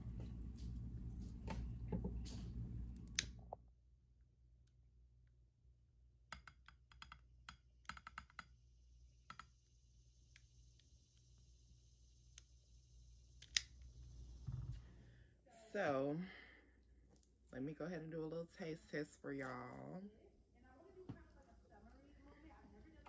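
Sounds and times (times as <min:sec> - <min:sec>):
lighter clicking: 0:13.4 - 0:13.9.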